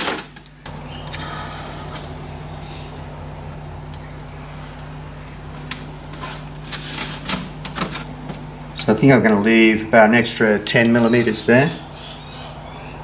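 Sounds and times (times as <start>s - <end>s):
low electrical hum: 0.0s - 13.0s
masking tape rubbing: 5.7s - 7.8s.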